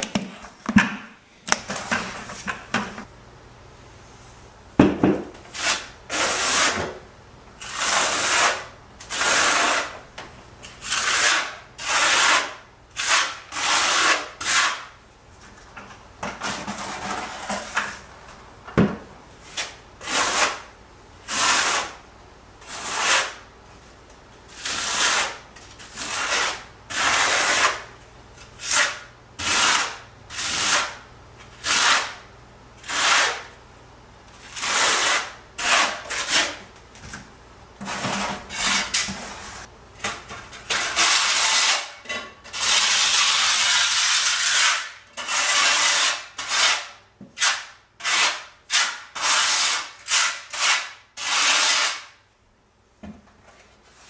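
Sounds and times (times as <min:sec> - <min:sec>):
trowel scraping mortar: 0:05.5 - 0:06.9, 0:07.6 - 0:10.0, 0:10.6 - 0:14.9, 0:19.5 - 0:20.7, 0:21.3 - 0:22.0, 0:22.6 - 0:23.4, 0:24.5 - 0:27.9, 0:28.5 - 0:31.0, 0:31.6 - 0:32.2, 0:32.8 - 0:33.5, 0:34.4 - 0:36.6, 0:37.8 - 0:39.7, 0:40.5 - 0:52.1.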